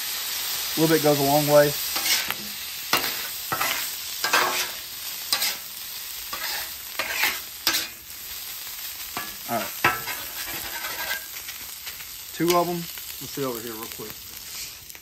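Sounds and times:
meat sizzling on griddle: 0:00.0 - 0:15.0
metal spatula scraping griddle: 0:01.9 - 0:08.1, 0:09.2 - 0:12.0.

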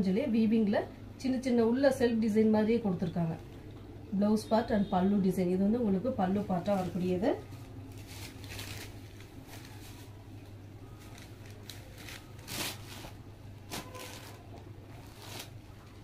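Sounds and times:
steady low hum: 0:00.0 - 0:16.0
cloth rustling: 0:06.6 - 0:16.0.

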